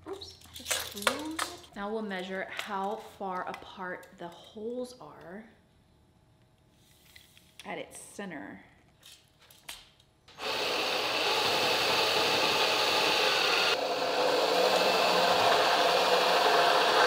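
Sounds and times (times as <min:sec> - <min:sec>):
cordless drill boring through wood: 0:10.3 - 0:17.0.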